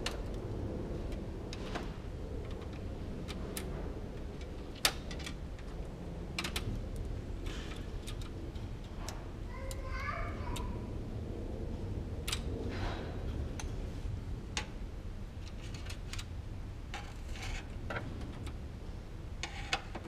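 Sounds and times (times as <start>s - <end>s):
plastic parts clicking and knocking: 15.4s - 16.3s.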